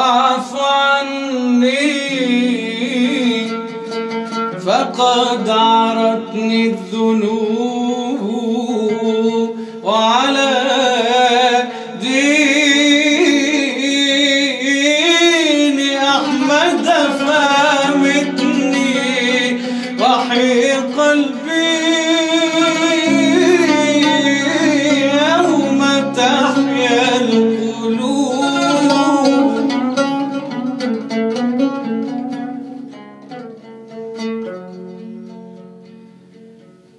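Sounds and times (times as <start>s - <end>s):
plucked strings: 0.0s - 36.9s
man singing melismatic line: 4.6s - 31.0s.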